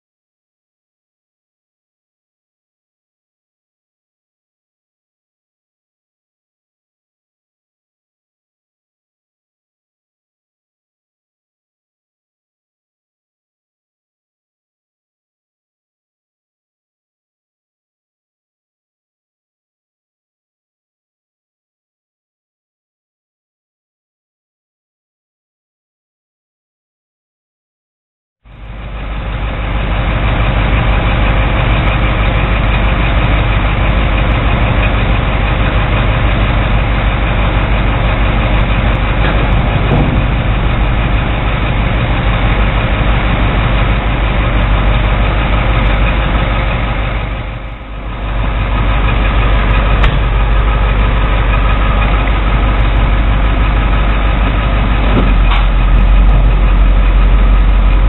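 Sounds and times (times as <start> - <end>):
diesel truck engine running: 28.5 - 58.0.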